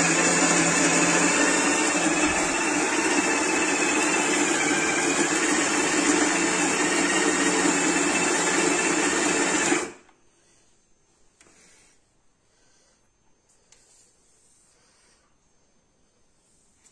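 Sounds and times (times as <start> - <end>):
electric coffee grinder running: 0.0 - 10.0.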